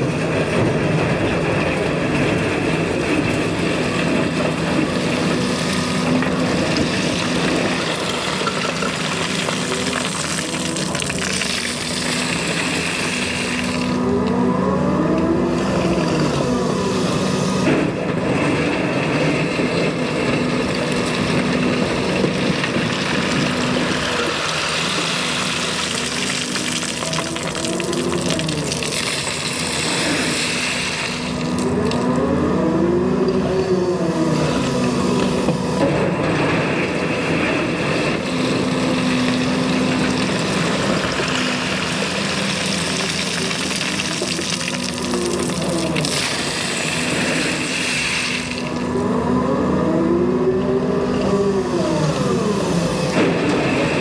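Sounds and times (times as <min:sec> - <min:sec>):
excavator diesel engine running: 0:00.0 - 0:54.0
hydraulics whining: 0:00.0 - 0:54.0.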